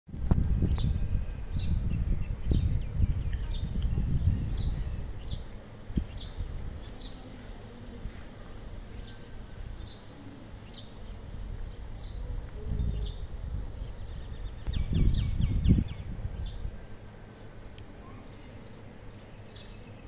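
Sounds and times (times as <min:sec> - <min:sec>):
birds chirping: 0:00.6 - 0:20.0
low rumble: 0:11.1 - 0:17.0.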